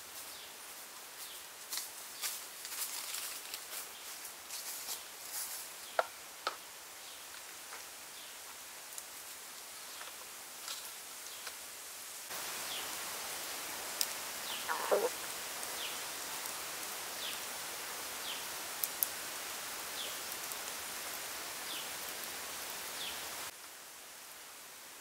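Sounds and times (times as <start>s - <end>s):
steady forest hiss: 0.0s - 25.0s
lower longer bird call: 14.5s - 15.1s.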